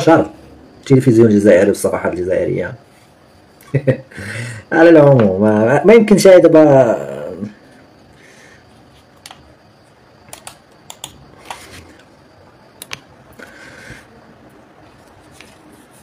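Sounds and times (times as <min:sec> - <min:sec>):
light keyboard clicks: 0:10.3 - 0:12.1, 0:12.8 - 0:13.1.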